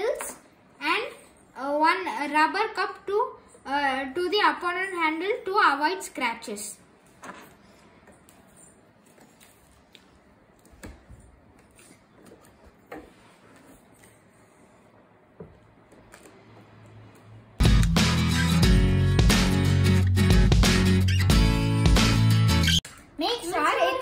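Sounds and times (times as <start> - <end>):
background music: 17.6 - 22.8.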